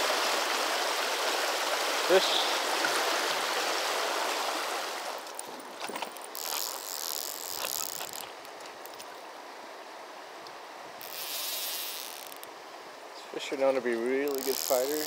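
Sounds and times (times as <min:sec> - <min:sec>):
river rushing: 0:00.0 - 0:08.4
fly reel drag buzzing: 0:05.4 - 0:09.0, 0:11.0 - 0:12.5, 0:14.2 - 0:15.0
reel clicks: 0:05.4 - 0:09.1, 0:11.0 - 0:12.5, 0:14.2 - 0:15.0.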